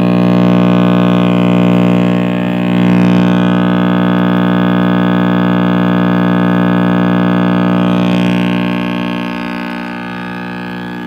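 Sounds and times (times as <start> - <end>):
radio speaker mains hum: 0.0 - 11.0.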